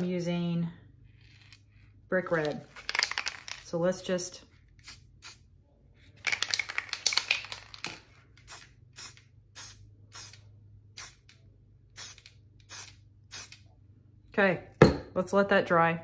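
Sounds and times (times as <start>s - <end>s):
spray paint hissing: 8.5s - 10.4s, 12.0s - 13.6s.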